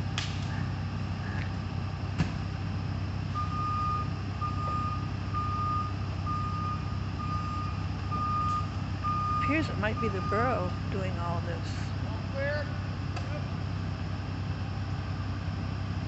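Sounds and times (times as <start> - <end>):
truck engine running: 0.0 - 16.0
back-up alarm beeping: 3.3 - 11.4.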